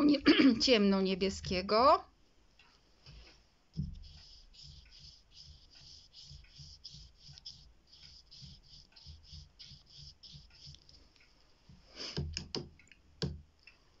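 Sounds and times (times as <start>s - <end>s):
paintbrush stroking paper: 3.2s - 11.0s.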